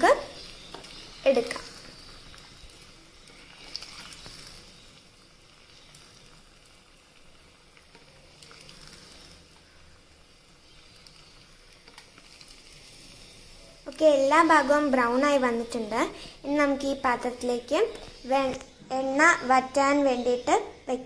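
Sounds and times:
light ticks of frying: 0:00.0 - 0:18.8
oil sizzling in a pan: 0:00.0 - 0:21.0.

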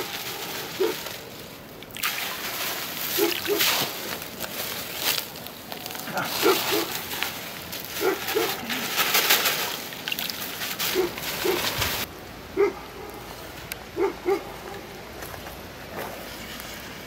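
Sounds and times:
rustling hiss with splashes: 0:00.0 - 0:12.3
dog barking: 0:00.8 - 0:01.0, 0:03.2 - 0:03.7, 0:06.4 - 0:06.9, 0:08.0 - 0:08.6, 0:10.9 - 0:11.6, 0:12.6 - 0:13.3, 0:14.0 - 0:14.8.

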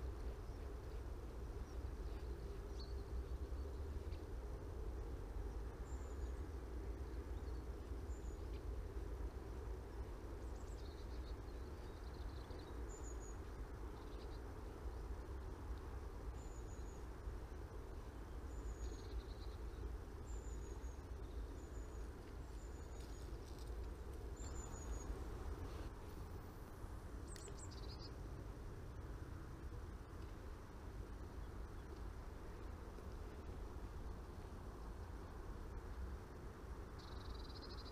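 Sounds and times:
small bird chirping: 0:10.0 - 0:14.4, 0:18.3 - 0:23.7, 0:24.3 - 0:25.8, 0:27.2 - 0:28.2, 0:37.0 - 0:37.9.

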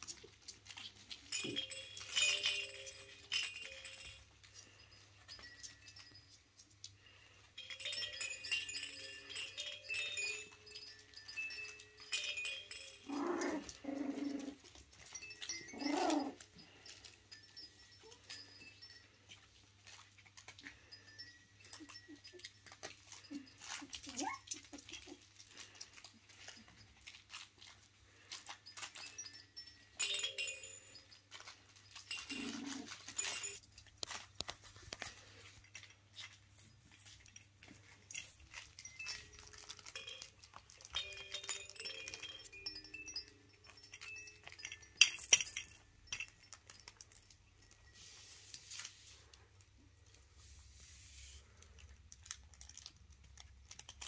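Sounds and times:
small clicks and rattles: 0:00.0 - 0:50.3, 0:51.4 - 0:54.0
puppies whimpering and squeaking: 0:08.8 - 0:30.1, 0:30.8 - 0:43.3.

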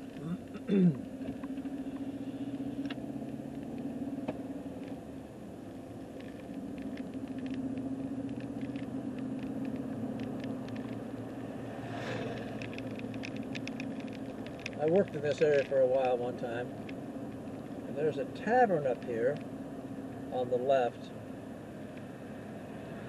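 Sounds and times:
car engine and road hum: 0:00.0 - 0:23.0
light rattles: 0:06.1 - 0:19.6.

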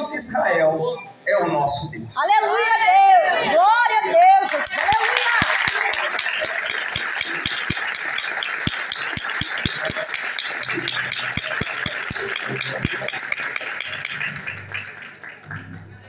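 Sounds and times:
applause and cheering: 0:04.4 - 0:16.0
congregation clapping in time: 0:04.5 - 0:16.0.

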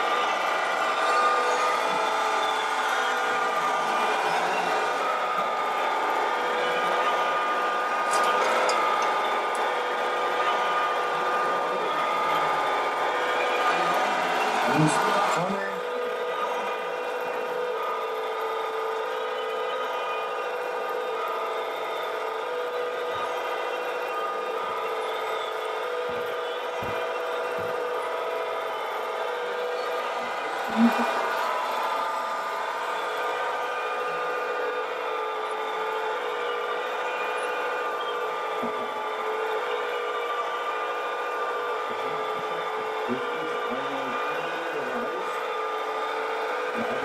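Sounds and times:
model excavator mechanical whine: 0:00.0 - 0:47.0.

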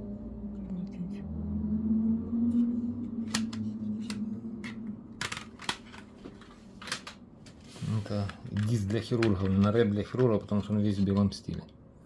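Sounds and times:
low steady hum: 0:00.0 - 0:12.0
plastic cd cases clicking: 0:03.3 - 0:11.2.

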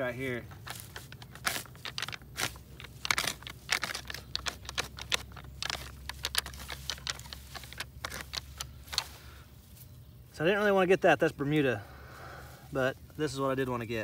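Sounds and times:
hoe scraping through dirt: 0:00.0 - 0:09.4.

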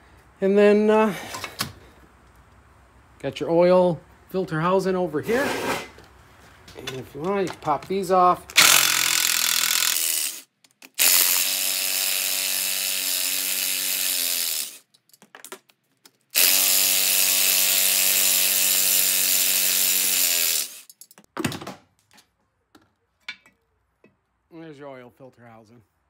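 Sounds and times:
cordless impact driver: 0:08.5 - 0:14.8, 0:16.4 - 0:20.9.

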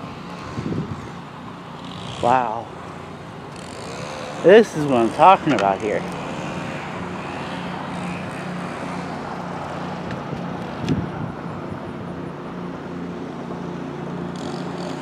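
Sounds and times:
outdoor noise: 0:00.0 - 0:15.0.

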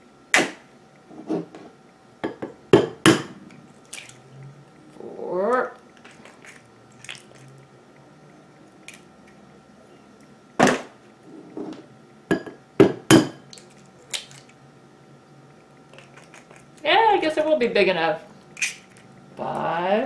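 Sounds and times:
eggs tapping on ceramic bowl: 0:12.3 - 0:13.4.

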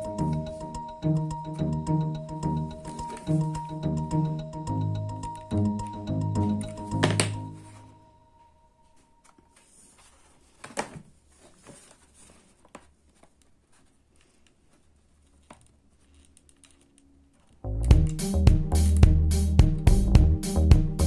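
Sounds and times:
cardboard rustling: 0:08.9 - 0:16.4.

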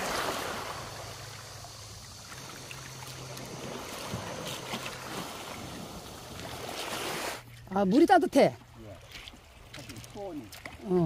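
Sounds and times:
small waves on a pebble shore: 0:00.0 - 0:07.5
bare feet splashing in shallows: 0:00.0 - 0:08.0, 0:08.6 - 0:11.0.

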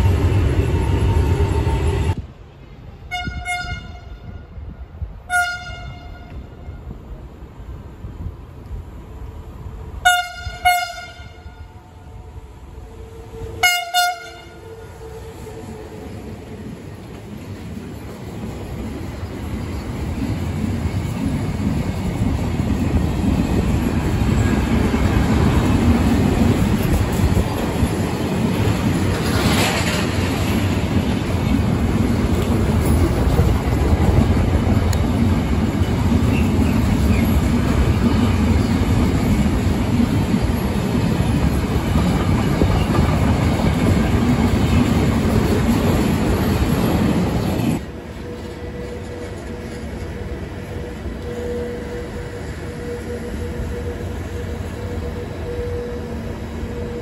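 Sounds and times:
train wheels running over rails: 0:15.1 - 0:57.0.

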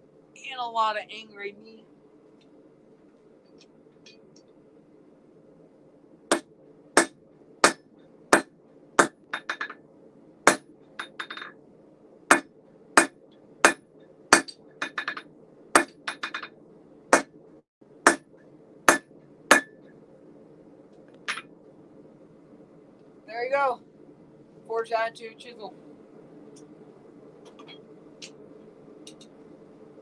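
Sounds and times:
hammer striking steel on anvil: 0:10.5 - 0:11.5, 0:12.3 - 0:15.2, 0:15.8 - 0:16.5, 0:18.1 - 0:18.3, 0:18.9 - 0:19.8.

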